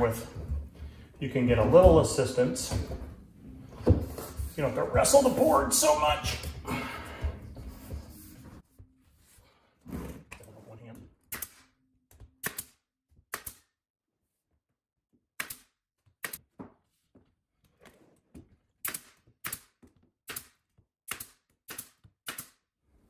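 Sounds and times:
nail gun shots into wood: 0:18.8 - 0:22.6.

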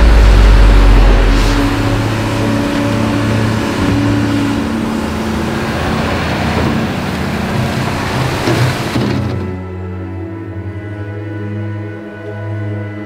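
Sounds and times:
bucket dumping wet rock: 0:00.0 - 0:09.7
excavator diesel engine running: 0:00.0 - 0:09.7.

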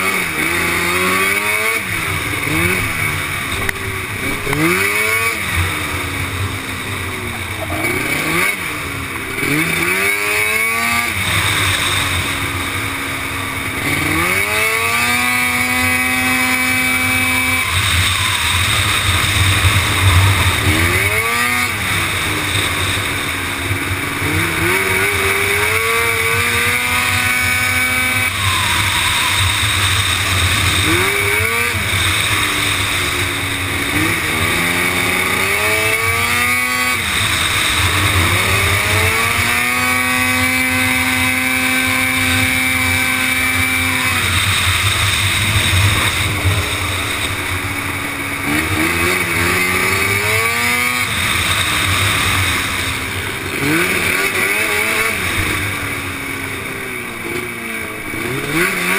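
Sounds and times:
quad engine revving: 0:00.0 - 0:58.9.

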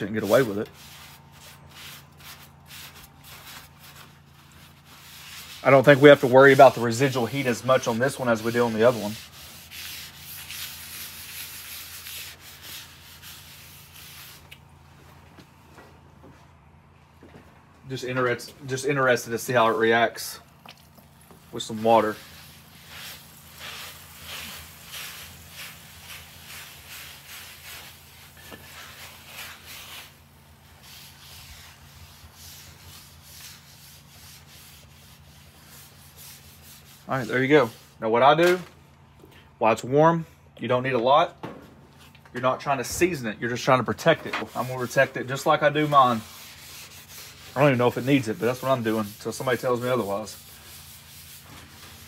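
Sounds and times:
paper towel rubbing griddle: 0:00.0 - 0:14.6, 0:21.4 - 0:38.6, 0:42.8 - 0:52.0.

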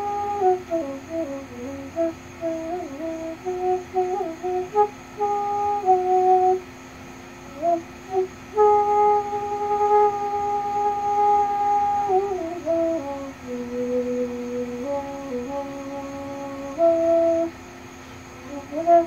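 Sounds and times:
high cicada drone: 0:00.0 - 0:19.0
bamboo flute melody: 0:18.5 - 0:19.0.

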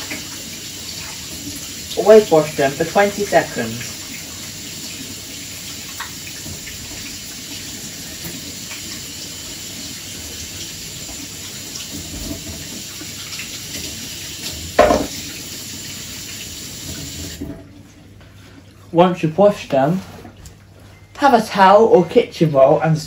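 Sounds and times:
tap running over washing hands: 0:00.0 - 0:18.4
loud clunk: 0:14.8 - 0:15.2.

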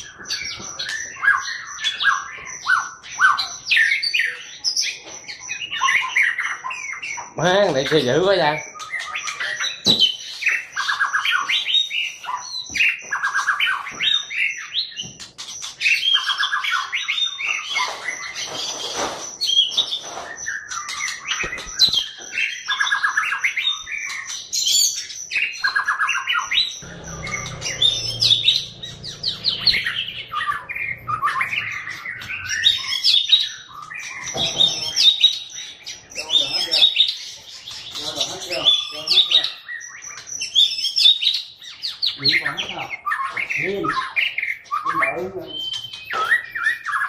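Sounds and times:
songbird singing trilled phrases: 0:00.0 - 0:47.0
low hum: 0:26.8 - 0:32.6.

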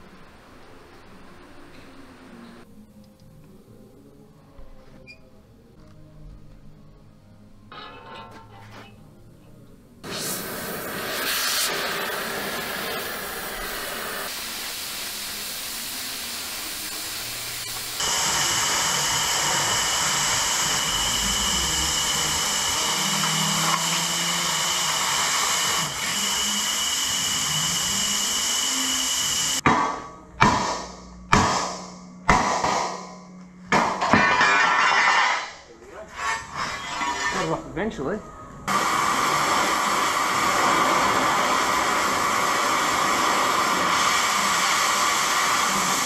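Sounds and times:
high whistle of oxygen jet: 0:10.0 - 0:29.6
torch flame hissing: 0:10.0 - 0:29.6, 0:38.7 - 0:46.0
sharp metallic hits: 0:29.6 - 0:35.6.

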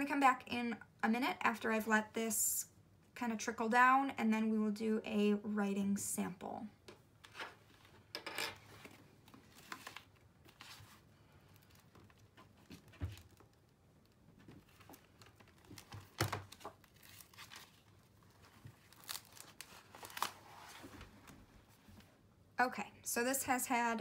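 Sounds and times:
notebook pages rustling: 0:08.6 - 0:22.1.

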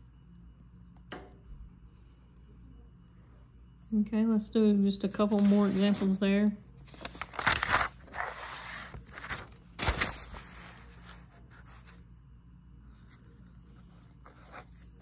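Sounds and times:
paper rustling and scraping: 0:05.2 - 0:06.2, 0:06.8 - 0:12.1, 0:13.1 - 0:15.0.

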